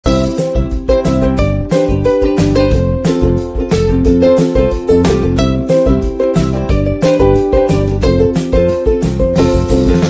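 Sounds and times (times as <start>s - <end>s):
light background melody: 0.0s - 10.0s.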